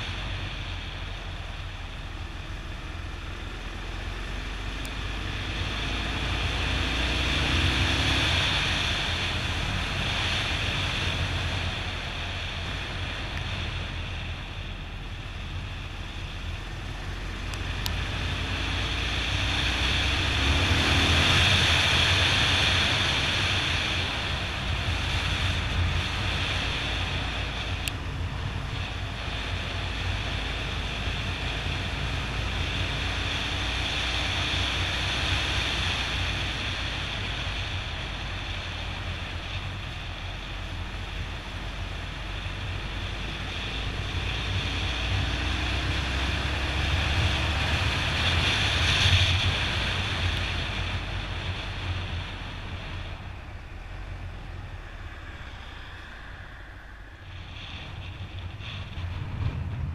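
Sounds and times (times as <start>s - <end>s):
wind buffeting microphone: 16.4s - 59.9s.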